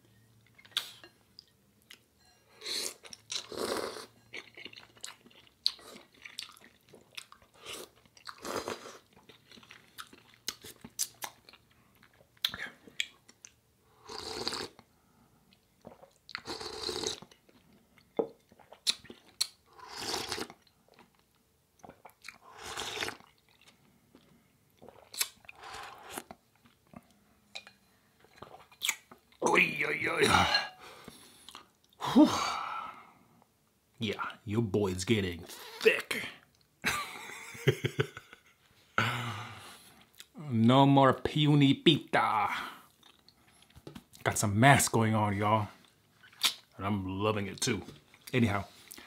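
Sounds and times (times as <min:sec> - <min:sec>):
slurping noodles and broth: 0:02.6 - 0:04.1, 0:07.5 - 0:09.1, 0:14.0 - 0:14.8, 0:15.9 - 0:17.3, 0:19.7 - 0:20.6, 0:21.8 - 0:23.4, 0:24.8 - 0:26.4
chewing with wet mouth clicks: 0:04.3 - 0:08.5, 0:09.1 - 0:13.6, 0:17.2 - 0:19.6, 0:20.4 - 0:29.3, 0:45.8 - 0:46.7.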